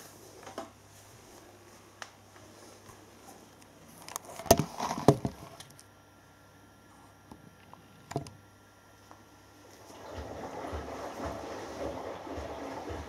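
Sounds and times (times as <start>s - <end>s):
washing machine low hum: 0.0s - 13.0s
wet laundry sloshing and thudding: 9.8s - 13.0s.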